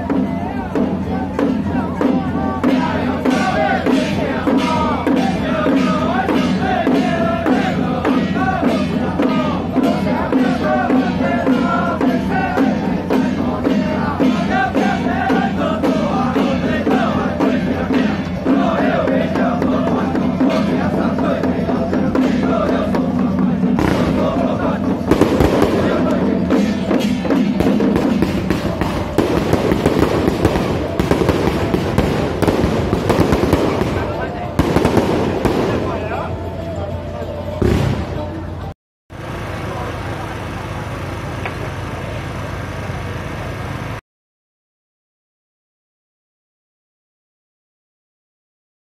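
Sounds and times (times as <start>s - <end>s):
drums: 0.0s - 44.0s
firecrackers crackling: 23.8s - 24.3s, 25.0s - 36.4s, 37.6s - 38.4s.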